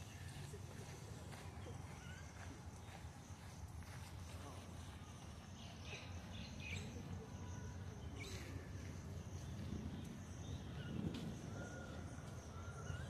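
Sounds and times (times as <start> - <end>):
insect drone: 0.0 - 13.0
bird chirps: 5.0 - 8.6.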